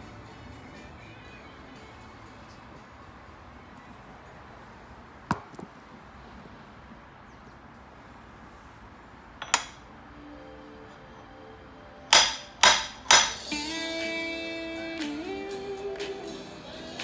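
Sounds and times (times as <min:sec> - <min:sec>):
steel parts clinking on metal: 0:09.4 - 0:09.8.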